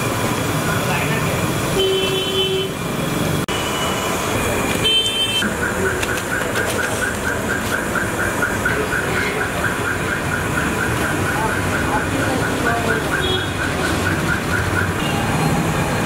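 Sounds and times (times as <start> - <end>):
street traffic: 0.0 - 16.0
vehicle horn toots: 1.8 - 2.8, 4.8 - 5.6, 13.1 - 13.6
rapid electronic chirping: 5.5 - 16.0.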